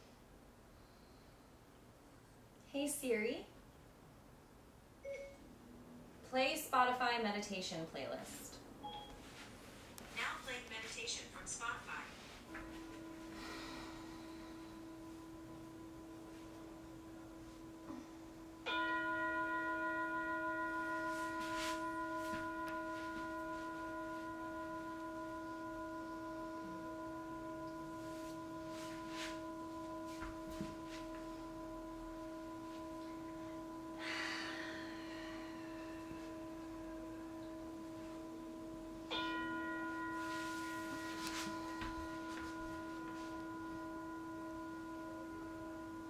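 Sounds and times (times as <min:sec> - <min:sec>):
faint sustained tone: 0:11.6 - 0:46.0
singing bowl ringing: 0:12.2 - 0:46.0.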